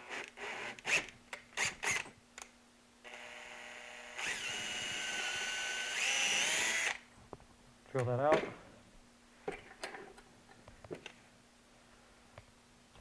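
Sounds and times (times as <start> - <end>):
drill motor whining: 3.1 - 7.0.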